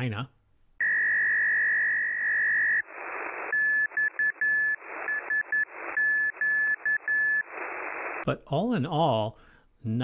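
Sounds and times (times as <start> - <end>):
morse code whistling tone: 0.8 - 7.6
static hiss: 0.8 - 8.3.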